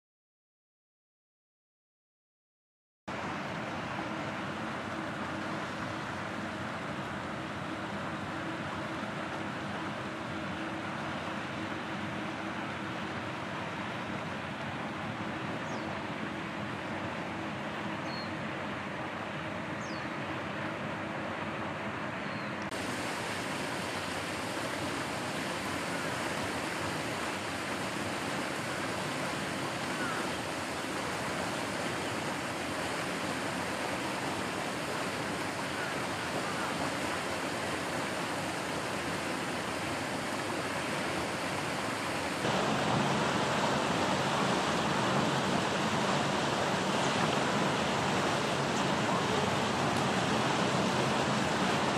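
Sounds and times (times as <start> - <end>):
steady rushing noise: 22.7 - 51.9.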